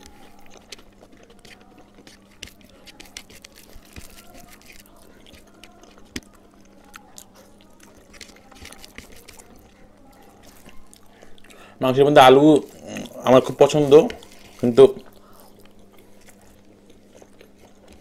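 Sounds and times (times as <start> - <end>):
fingers squishing rice: 0.0 - 11.4
chewing: 0.0 - 11.8, 12.5 - 18.0
faint steady hum: 0.0 - 18.0.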